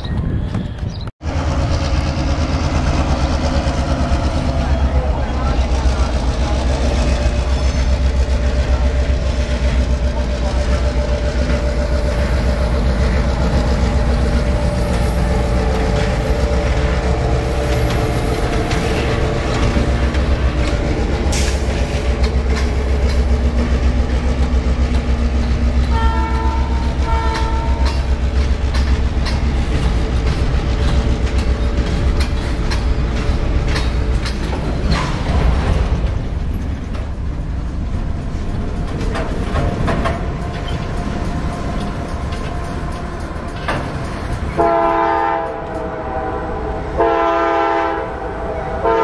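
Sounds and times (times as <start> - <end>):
diesel locomotive engine rumble: 0.0 - 49.0
train wheels clacking over rail joints: 1.2 - 46.2
locomotive horn blasts: 25.8 - 27.9, 44.6 - 49.0.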